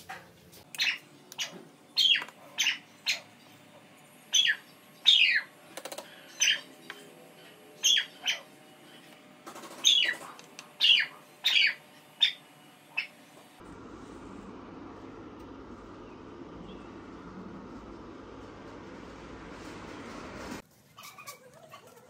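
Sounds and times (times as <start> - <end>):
bird calling: 9.7 - 13.2.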